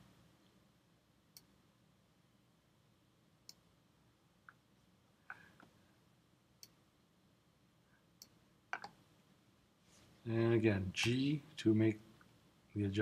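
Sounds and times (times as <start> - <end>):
mouse and keyboard clicks: 8.2 - 9.0.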